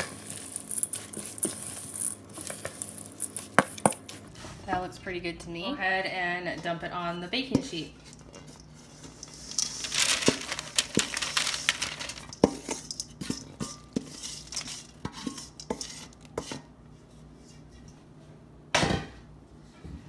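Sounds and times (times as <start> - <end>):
granola pouring rustle: 0.0 - 4.4, 8.0 - 16.2
clicks and scrapes on metal bowl: 12.3 - 16.7.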